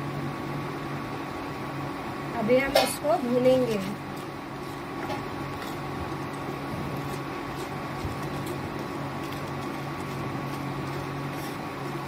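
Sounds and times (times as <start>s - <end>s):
appliance hum: 0.0s - 12.0s
wooden spatula scraping spices: 3.2s - 12.0s.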